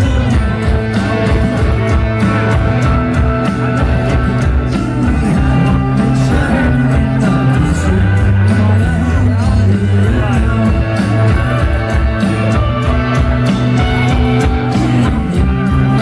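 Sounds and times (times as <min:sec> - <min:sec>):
electric guitar: 0:00.0 - 0:16.0
person singing: 0:03.8 - 0:16.0.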